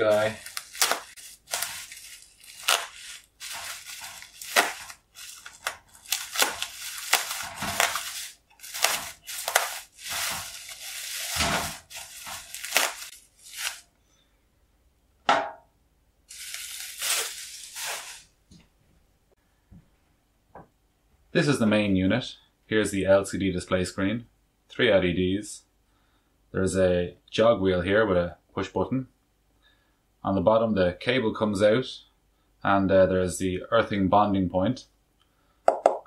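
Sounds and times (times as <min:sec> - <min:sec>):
bubble wrap crinkling: 0:00.0 - 0:13.9, 0:16.3 - 0:18.4.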